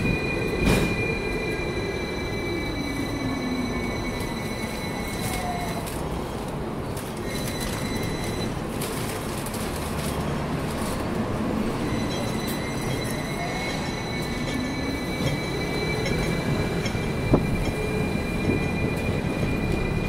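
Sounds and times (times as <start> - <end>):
high wheel squeal: 0.0 - 6.0, 11.7 - 20.0
tram wheels rumbling on rails: 0.0 - 20.0.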